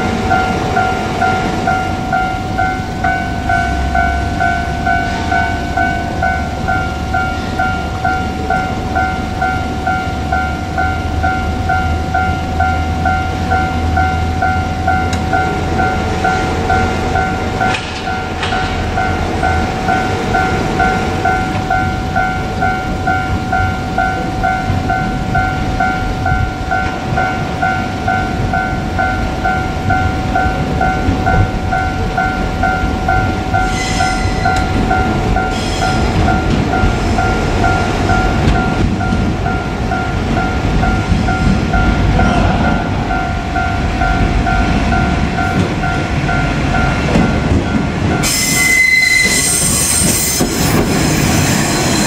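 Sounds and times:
level crossing warning bell: 0.0s - 52.0s
low rumble: 36.0s - 48.2s.

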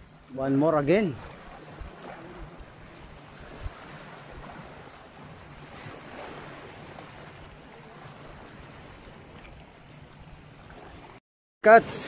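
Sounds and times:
waves washing against rocks: 0.9s - 9.0s
wind on microphone: 1.1s - 9.7s.

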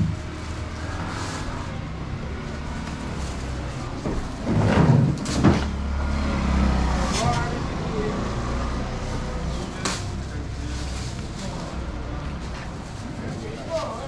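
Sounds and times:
low vehicle engine hum: 0.0s - 14.0s
plastic crate and boxes clattering: 2.7s - 5.8s.

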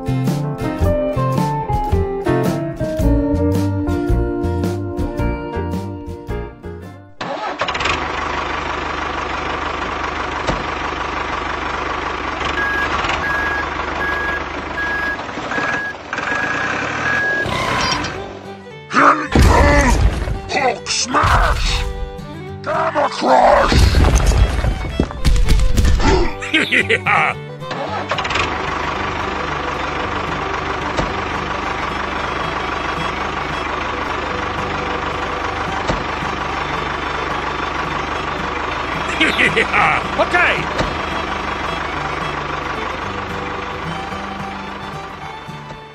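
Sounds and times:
diesel tractor engine chugging: 7.1s - 45.9s
reversing alarm beeping: 12.5s - 18.1s.

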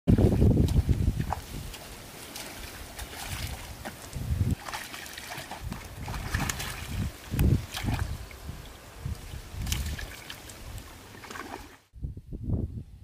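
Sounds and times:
fish splashing in water: 1.2s - 8.4s.

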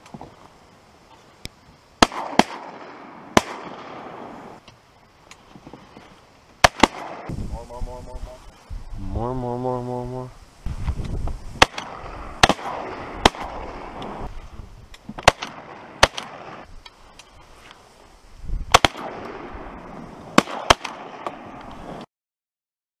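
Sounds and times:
shotgun shots: 2.0s - 4.6s, 6.6s - 7.3s, 11.6s - 14.2s, 15.2s - 16.7s, 18.7s - 22.0s.

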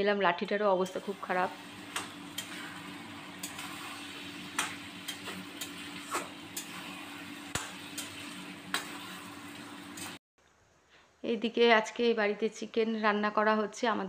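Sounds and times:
frying sizzle: 0.8s - 10.2s
metal spatula scraping a pan: 0.9s - 10.2s.

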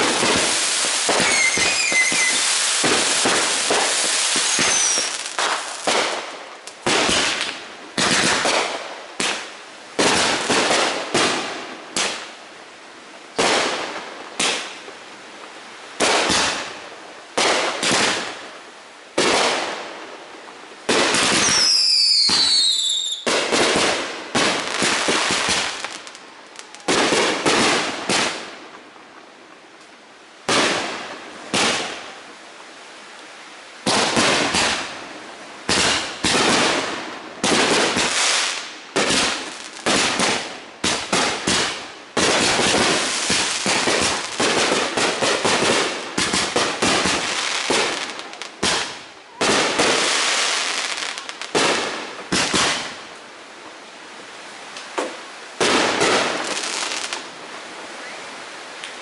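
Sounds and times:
falling firework whistles: 0.0s - 6.2s, 21.2s - 23.3s, 57.9s - 58.4s
fireworks bursting with bangs: 0.0s - 12.4s, 13.3s - 15.0s, 16.0s - 20.2s, 20.8s - 28.8s, 30.4s - 32.2s, 33.8s - 53.2s, 54.7s - 57.3s.

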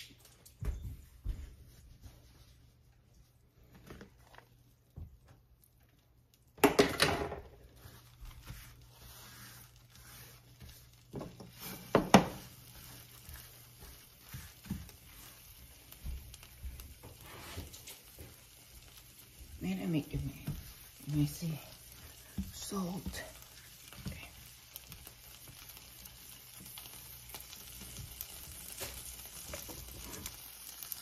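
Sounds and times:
cloth rubbing on glass stove: 1.2s - 4.9s, 7.4s - 24.2s
kitchen clatter and rustle: 6.5s - 9.6s, 10.4s - 25.6s, 26.6s - 31.0s.

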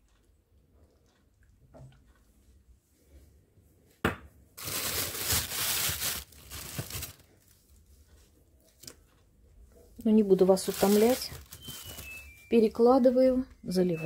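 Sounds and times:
plastic bag rustling: 4.6s - 7.6s, 10.0s - 13.2s.

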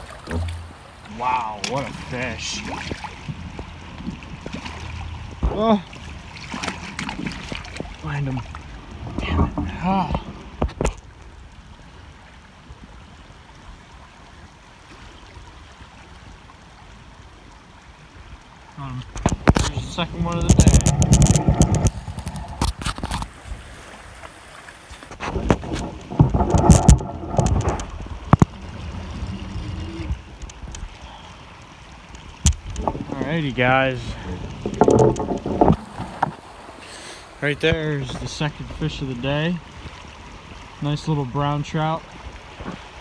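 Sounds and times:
creek rushing over rocks: 0.0s - 17.1s, 17.9s - 43.0s
stream water rippling: 0.0s - 43.0s
sharp knocks: 0.3s - 0.8s
low rumble: 19.6s - 22.7s, 25.3s - 30.9s.

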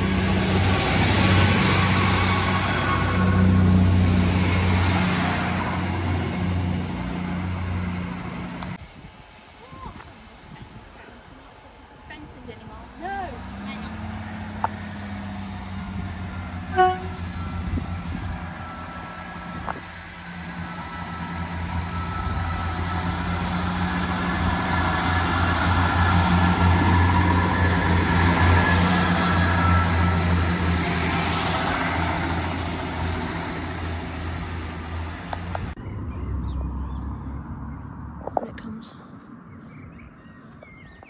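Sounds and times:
diesel train engine drone: 0.0s - 39.6s
rail noise: 0.0s - 41.0s
train horn tone: 16.6s - 17.9s.

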